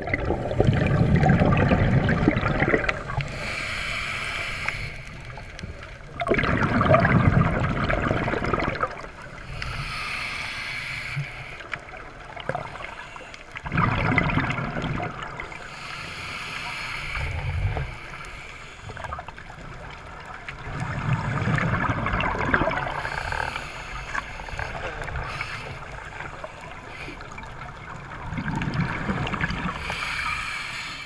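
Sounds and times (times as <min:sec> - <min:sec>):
exhaled bubbles gurgling: 0:00.0 - 0:31.0
inhaled air hiss: 0:03.0 - 0:05.9, 0:09.3 - 0:12.0, 0:15.5 - 0:19.2, 0:22.9 - 0:27.4, 0:29.6 - 0:31.0.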